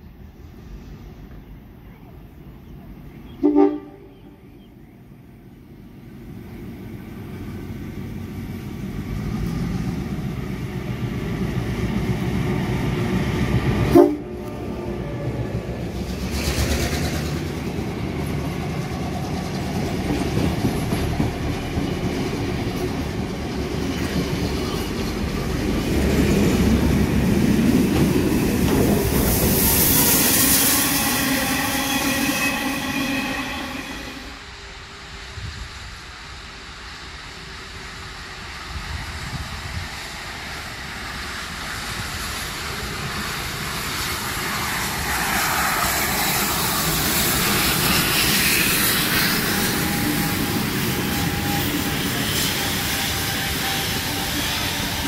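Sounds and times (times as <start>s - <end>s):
steam whistle toots: 3.4s - 4.1s, 13.9s - 14.5s, 30.0s - 34.4s, 47.8s - 55.0s
steam hissing: 6.4s - 55.0s
train wheels clattering on rails: 15.8s - 31.6s, 40.4s - 55.0s.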